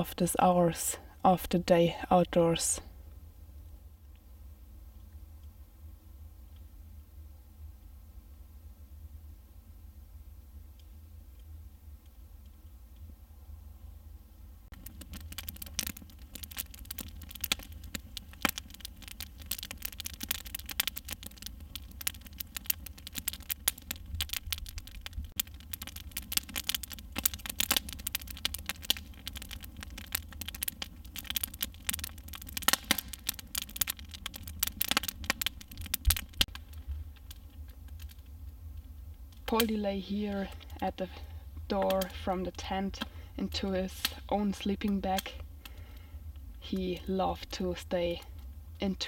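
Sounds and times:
campfire crackling and popping: 0.0s - 8.0s, 10.5s - 13.6s, 14.4s - 49.0s.

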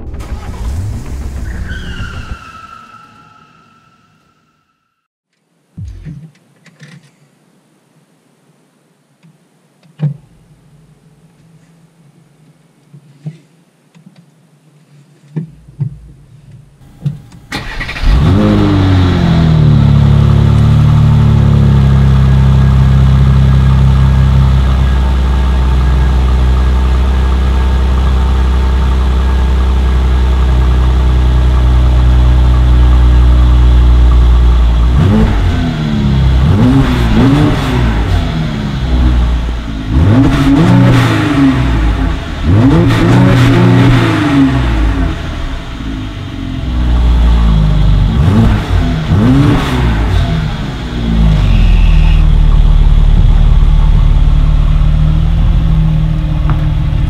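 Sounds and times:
car engine starting and idling: 0.0s - 2.8s, 16.0s - 57.0s
engine revving: 17.5s - 57.0s.

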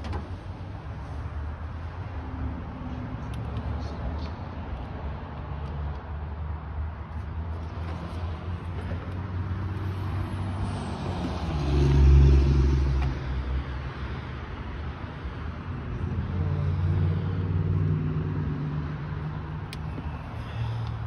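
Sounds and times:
car engine passing: 9.2s - 13.4s.

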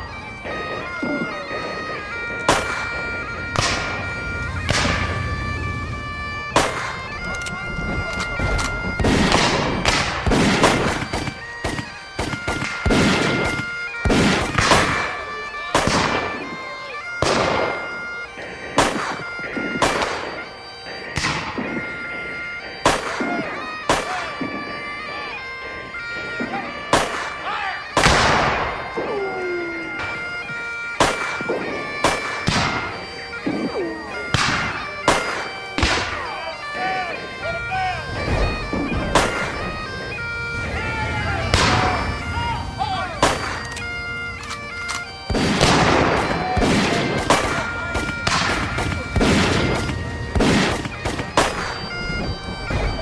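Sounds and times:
bagpipes playing: 0.0s - 53.0s
steady held musical notes: 0.0s - 53.0s
musket shots echoing: 2.5s - 2.9s, 6.5s - 7.0s, 9.0s - 15.1s, 15.8s - 16.4s, 17.2s - 17.8s, 18.8s - 19.2s, 19.8s - 20.3s, 21.2s - 21.8s, 22.8s - 24.6s, 26.4s - 27.4s, 28.0s - 28.8s, 31.0s - 32.9s, 34.3s - 36.2s, 38.7s - 39.5s, 43.2s - 43.7s, 44.9s - 51.8s.

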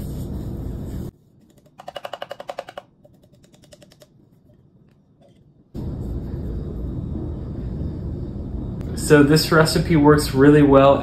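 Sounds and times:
steady low rumble: 5.8s - 10.4s.

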